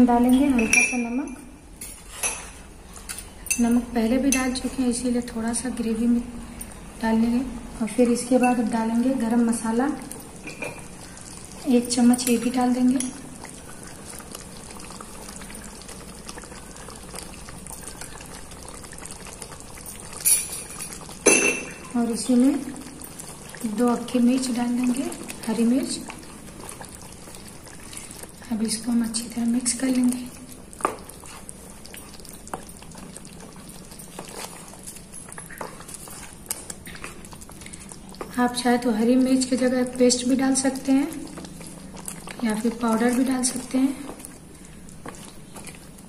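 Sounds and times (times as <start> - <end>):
gravy bubbling and popping: 9.2 - 46.0
wooden spatula stirring: 22.1 - 38.6, 39.8 - 46.0.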